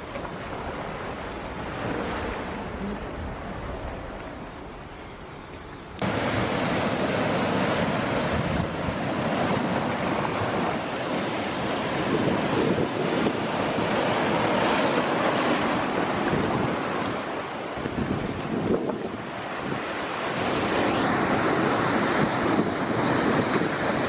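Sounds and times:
surf washing over rocks: 6.0s - 24.0s.

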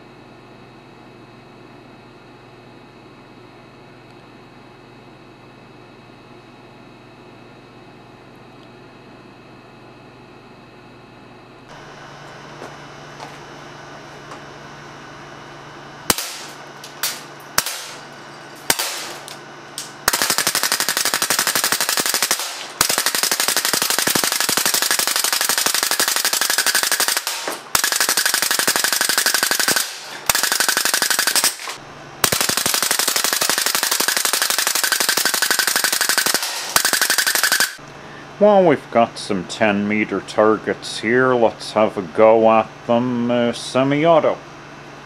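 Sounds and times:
pellets hitting metal plate: 16.1s - 19.4s, 20.1s - 37.8s
air cannon firing: 16.1s - 37.8s.

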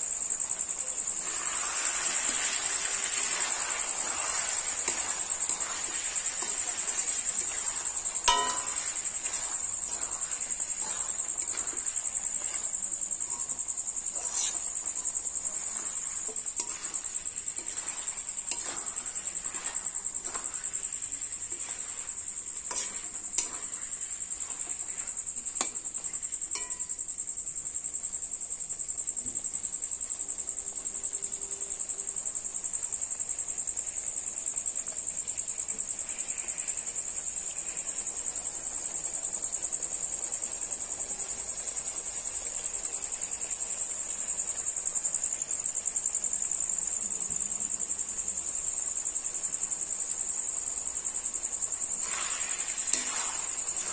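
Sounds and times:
cricket trilling: 0.0s - 53.9s
metal spoon scraping metal pan: 1.2s - 25.8s, 52.0s - 53.9s.

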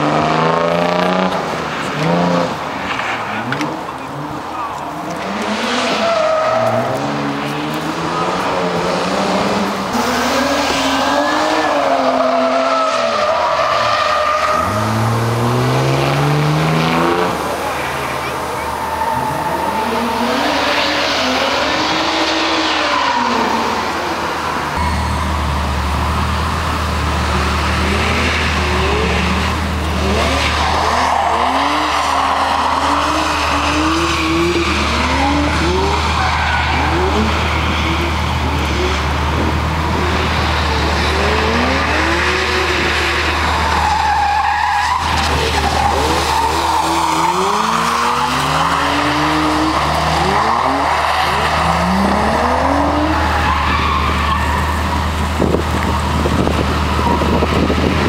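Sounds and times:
car engine revving hard: 13.5s - 23.8s, 25.9s - 31.9s, 32.6s - 44.4s, 45.1s - 58.0s.

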